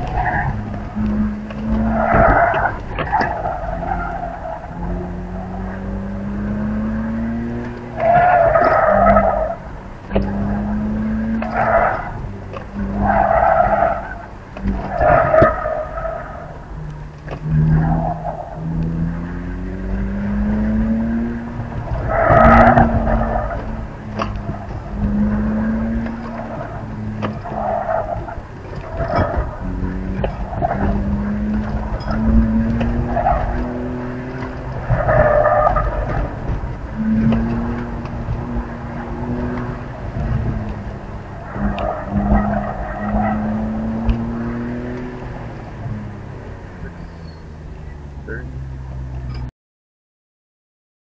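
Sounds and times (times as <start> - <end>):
car engine running under load: 0.0 - 49.5
tires squealing: 0.0 - 49.5
tyres squealing: 46.8 - 48.5.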